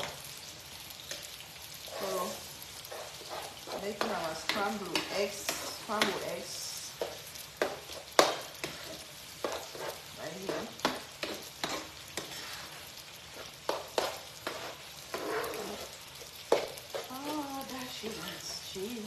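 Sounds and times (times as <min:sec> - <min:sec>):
frying sizzle: 0:00.0 - 0:19.0
metal spoon scraping frying pan: 0:01.8 - 0:18.7.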